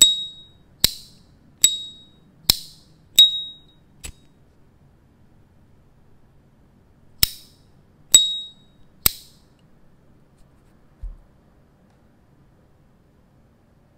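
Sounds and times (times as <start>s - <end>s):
high metallic ping: 0.0s - 4.3s, 7.2s - 9.5s.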